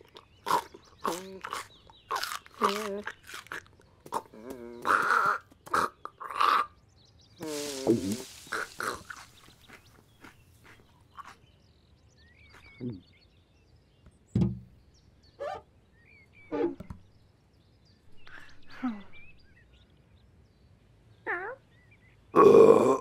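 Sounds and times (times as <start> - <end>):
bird chirps: 0.0 - 22.4
dull thump: 14.4 - 14.7.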